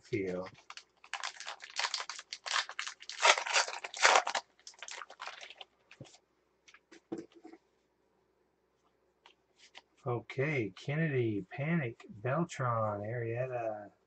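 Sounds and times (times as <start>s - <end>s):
wrapper crinkling and tearing: 0.2s - 6.1s.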